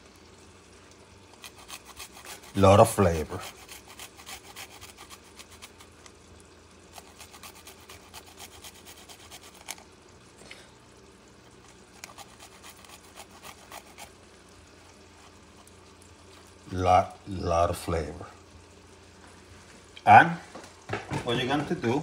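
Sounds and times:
garlic rasping on metal grater: 1.3s - 5.9s, 6.9s - 9.8s, 12.0s - 14.1s.

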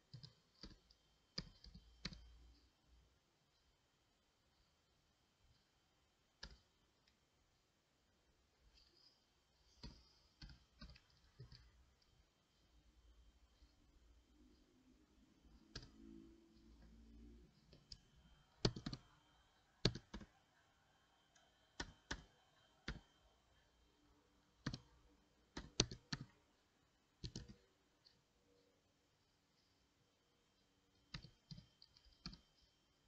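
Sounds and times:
keyboard keys clicking: 18.6s - 19.1s, 19.8s - 20.3s, 21.8s - 23.1s, 25.5s - 26.4s, 27.2s - 28.2s.

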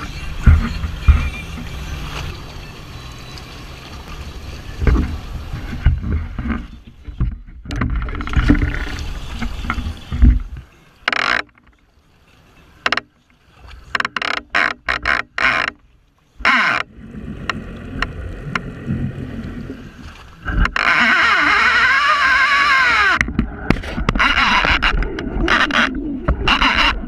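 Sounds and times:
sea water rushing: 0.0s - 27.0s
water splashing: 0.0s - 27.0s
wind: 0.0s - 27.0s
low rumble: 16.8s - 20.6s.

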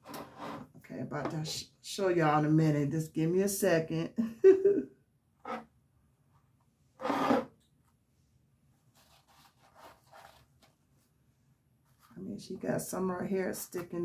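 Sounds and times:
rubbing and scraping handling noise: 5.4s - 8.0s, 8.7s - 12.8s.

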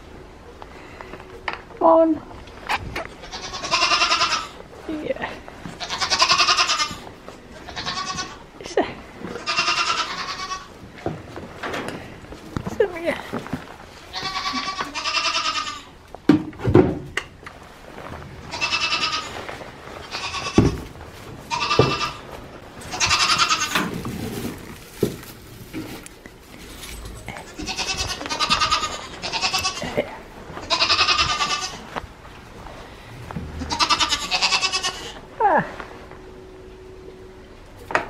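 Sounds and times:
goats bleating: 3.1s - 4.6s, 5.6s - 8.5s, 9.2s - 10.8s, 14.1s - 16.0s, 18.4s - 20.8s, 21.5s - 22.3s, 22.9s - 23.8s, 27.3s - 32.0s, 33.5s - 35.3s
sharp knocks and thumps: 16.3s - 17.3s, 20.6s - 21.0s.

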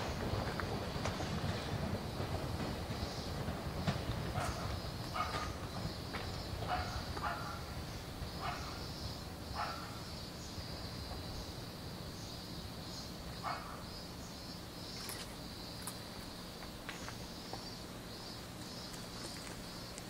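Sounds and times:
cicadas droning: 0.0s - 20.0s
distant dog barking: 4.3s - 5.7s, 6.6s - 7.8s, 8.4s - 8.9s, 9.5s - 10.1s, 13.4s - 13.9s.

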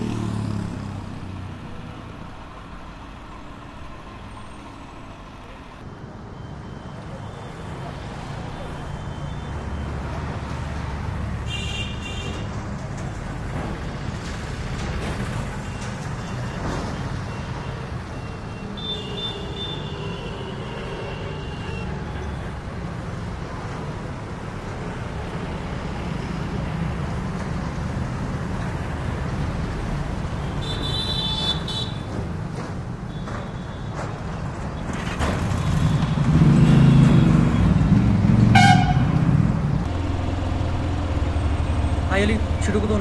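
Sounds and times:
motorcycle engines rumbling: 0.0s - 2.4s, 34.0s - 43.0s.

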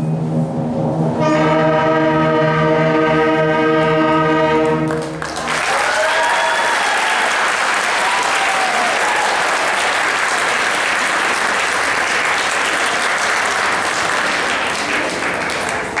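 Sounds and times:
audience applauding: 4.9s - 16.0s.

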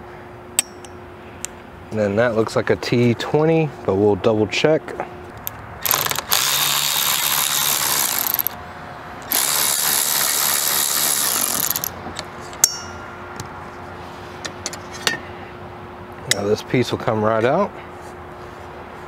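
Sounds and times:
electric ratchet running: 5.4s - 8.6s, 9.2s - 12.0s.

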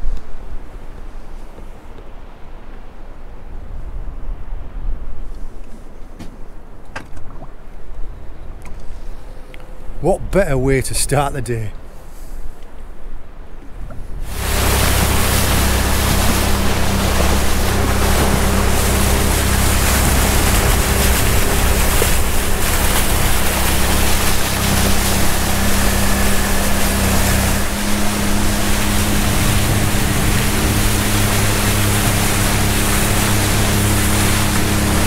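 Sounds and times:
water washing past hull: 0.0s - 35.0s
boat engine humming: 5.8s - 35.0s.

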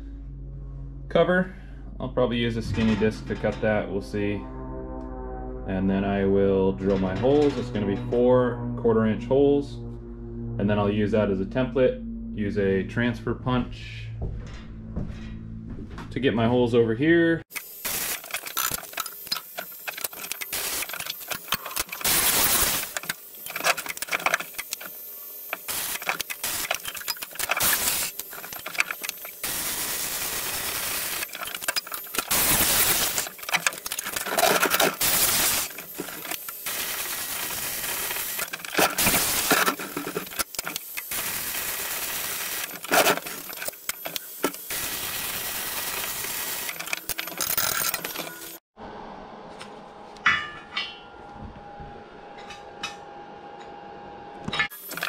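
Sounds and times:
welding arc crackling and hissing: 17.5s - 48.6s, 54.7s - 55.0s.

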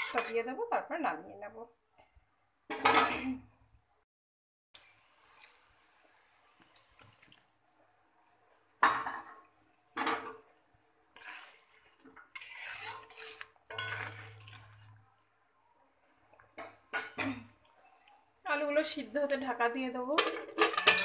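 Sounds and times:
spatula scraping metal pan: 11.2s - 15.0s
metal spatula clanking on pan: 12.4s - 14.4s, 20.2s - 21.0s.

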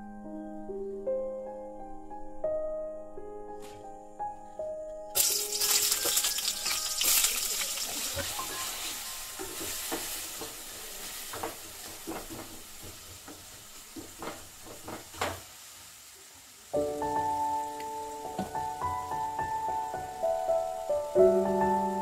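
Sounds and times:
vegetables sizzling in hot oil: 5.2s - 22.0s
spatula scraping pan: 5.3s - 13.0s.

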